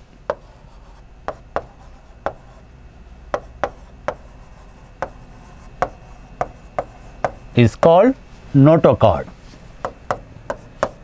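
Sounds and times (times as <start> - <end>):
chalk scraping: 0.3 - 2.6, 3.6 - 7.6
chalk tapping on blackboard: 0.3 - 2.6, 3.3 - 8.0, 9.8 - 11.0.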